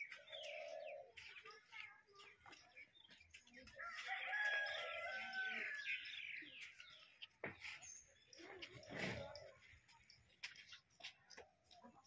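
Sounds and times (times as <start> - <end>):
small birds chirping: 0.0 - 12.0
rooster crowing: 3.8 - 5.9.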